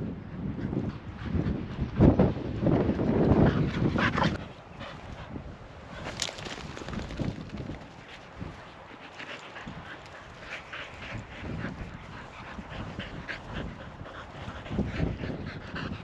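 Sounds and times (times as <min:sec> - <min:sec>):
dog panting: 0:08.4 - 0:16.0.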